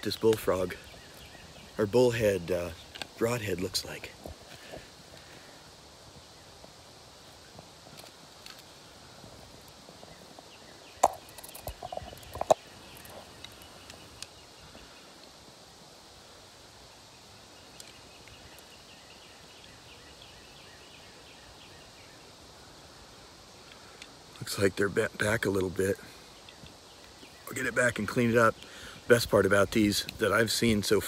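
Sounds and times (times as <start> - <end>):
dry grass and leaves rustling: 0.0 - 24.4
faint steady background: 0.0 - 31.0.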